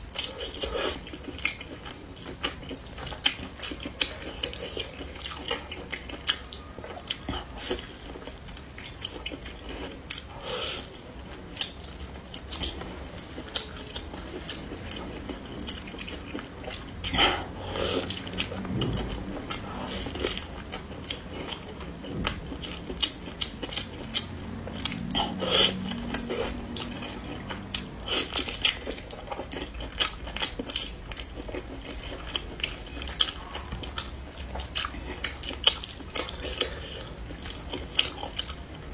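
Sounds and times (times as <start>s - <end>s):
wet biting and chewing: 0.0s - 38.8s.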